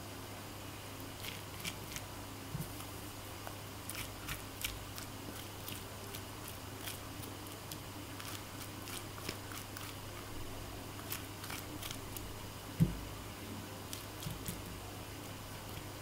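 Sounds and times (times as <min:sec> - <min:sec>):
spoon scraping pumpkin: 0:03.9 - 0:12.3.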